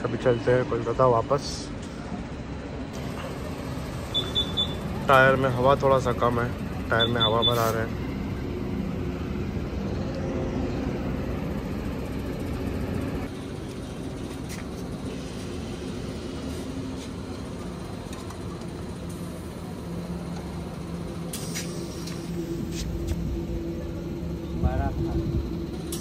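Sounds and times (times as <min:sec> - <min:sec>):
low mechanical hum: 0:00.0 - 0:26.0
compressed air hissing: 0:21.3 - 0:23.2.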